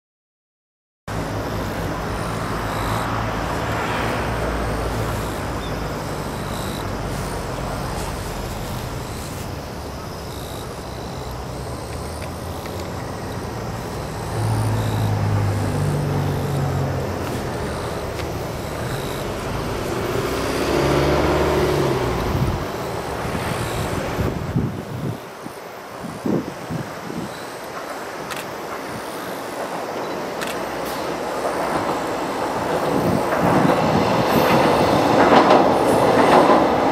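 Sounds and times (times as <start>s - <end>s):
distant vehicle engine: 1.1s - 25.2s
steady outdoor hum: 1.1s - 36.9s.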